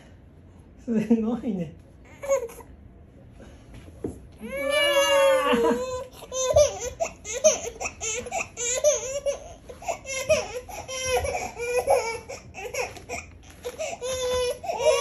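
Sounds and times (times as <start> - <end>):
baby crying and squealing: 4.4 - 15.0.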